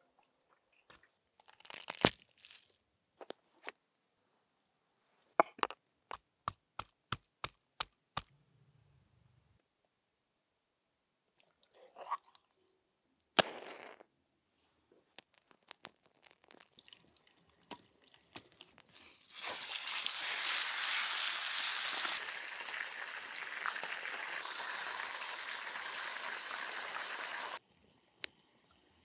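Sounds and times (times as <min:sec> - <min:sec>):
wood fire crackling: 0:15.1 - 0:17.6
chicken sizzling in a pan: 0:18.9 - 0:27.6.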